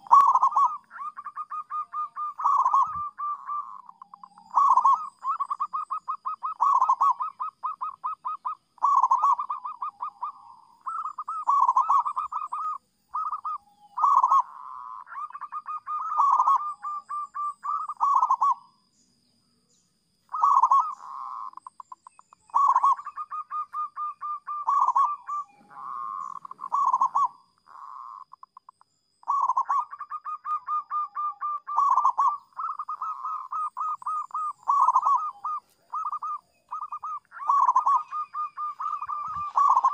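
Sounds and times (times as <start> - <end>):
dove cooing: 0.0 - 18.6, 20.3 - 39.9.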